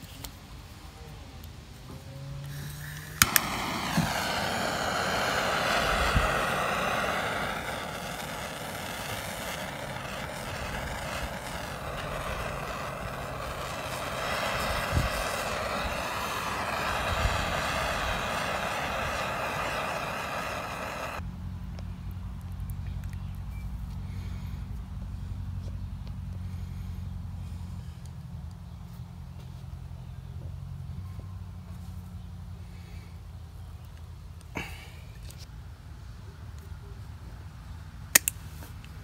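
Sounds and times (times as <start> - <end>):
gas torch flame hissing: 2.4 - 21.2, 34.6 - 35.0
gas torch igniter click: 2.5 - 21.2, 38.2 - 38.4.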